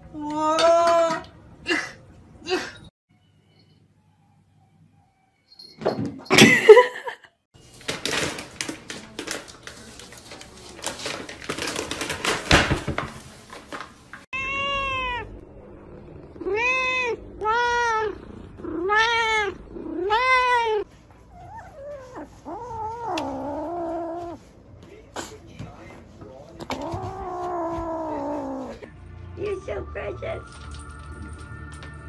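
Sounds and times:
rustling and clattering: 0:07.6 - 0:14.3
cat meowing: 0:14.4 - 0:15.4, 0:16.4 - 0:20.8.

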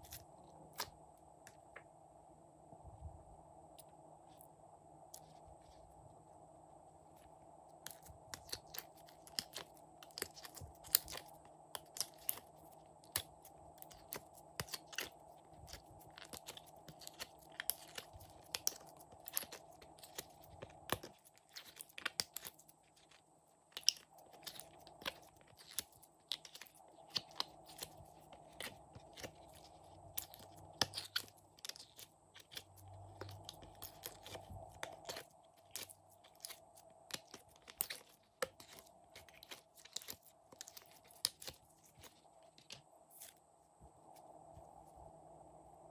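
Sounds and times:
slime crackling and popping: 0:07.9 - 0:23.1, 0:23.8 - 0:42.2.

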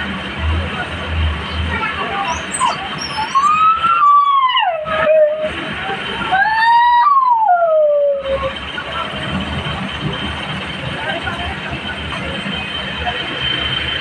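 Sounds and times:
steady background noise: 0:00.0 - 0:14.0
dog howling: 0:02.6 - 0:05.6, 0:06.3 - 0:08.5.

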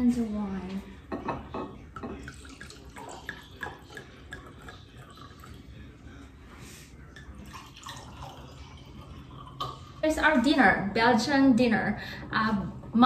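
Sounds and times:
wine trickling into glass: 0:01.6 - 0:06.0, 0:07.0 - 0:10.0.

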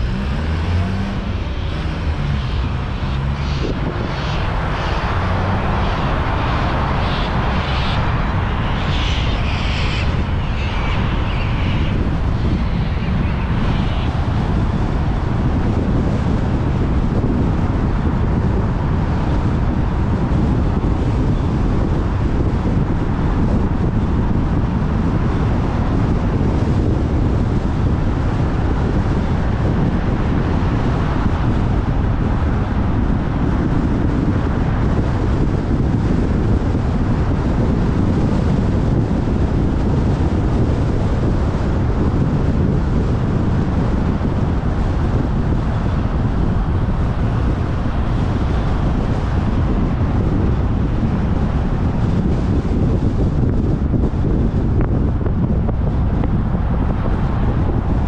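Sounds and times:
road and tyre noise: 0:00.0 - 0:58.0
wind buffeting microphone: 0:00.0 - 0:58.0.

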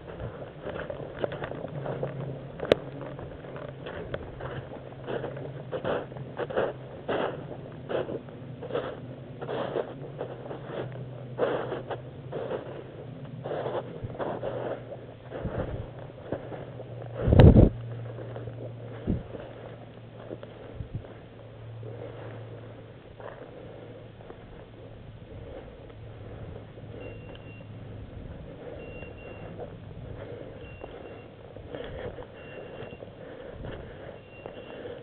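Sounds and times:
footsteps crunching dry leaves: 0:00.0 - 0:21.3
steady low hum: 0:00.0 - 0:35.0.

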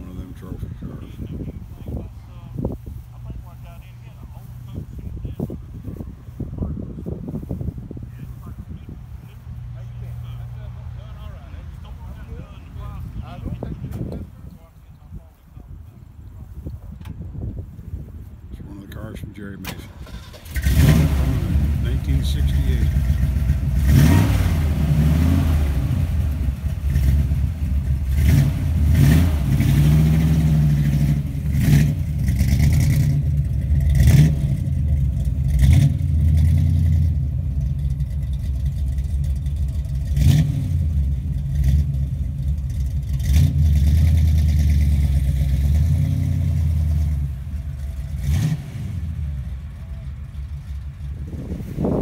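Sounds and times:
car engine revving: 0:19.3 - 0:52.0.

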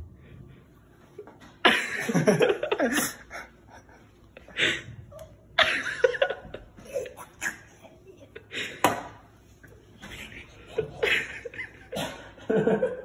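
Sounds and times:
young men laughing: 0:01.6 - 0:04.9, 0:05.5 - 0:09.1, 0:09.7 - 0:13.0.

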